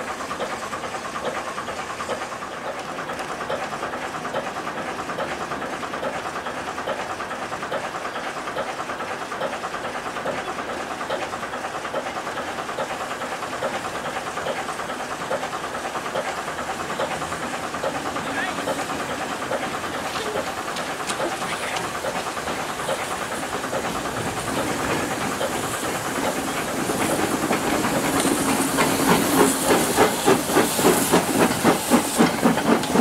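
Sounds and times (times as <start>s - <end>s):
locomotive engine idling: 0.0s - 33.0s.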